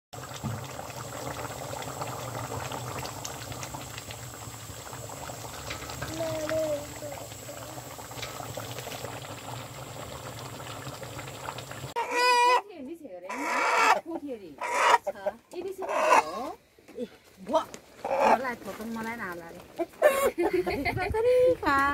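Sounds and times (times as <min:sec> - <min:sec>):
gravy bubbling and popping: 0:00.1 - 0:12.0.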